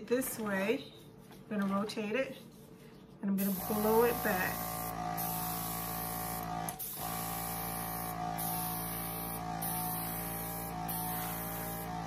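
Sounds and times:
airbrush air hissing: 3.4s - 12.0s
compressor motor hum: 3.5s - 12.0s.

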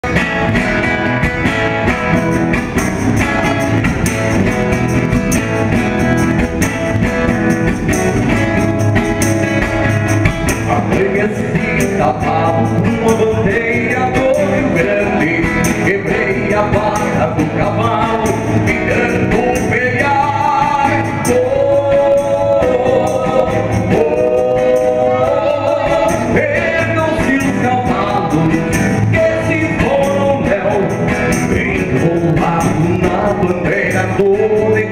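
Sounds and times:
acoustic guitar: 0.0s - 34.9s
tambourine shaking: 1.4s - 34.9s
men singing: 10.4s - 34.9s.

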